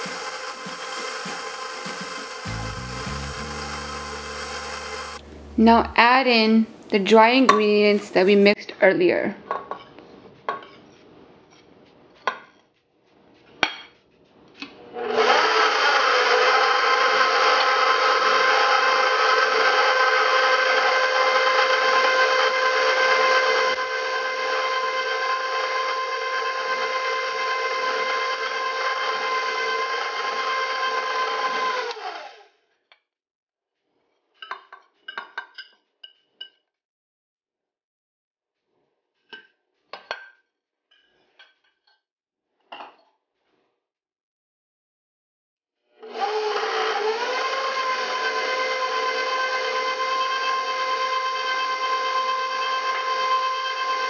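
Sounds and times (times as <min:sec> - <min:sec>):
stand mixer motor running: 0:00.0 - 0:05.6, 0:15.1 - 0:32.4, 0:46.1 - 0:54.0.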